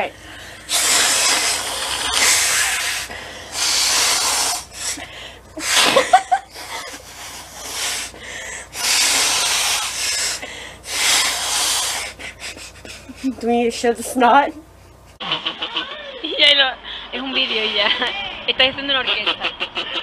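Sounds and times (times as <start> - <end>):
people blowing noses: 0.2 - 13.2.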